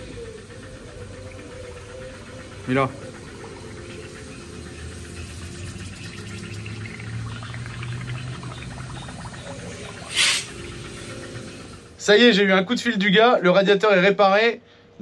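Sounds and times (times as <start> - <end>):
low steady hum: 0.0 - 12.1
water sloshing and splashing: 2.8 - 11.4.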